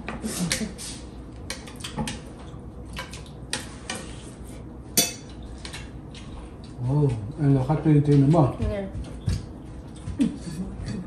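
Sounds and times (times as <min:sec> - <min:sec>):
spoons clinking on ceramic plates: 0:05.0 - 0:05.4.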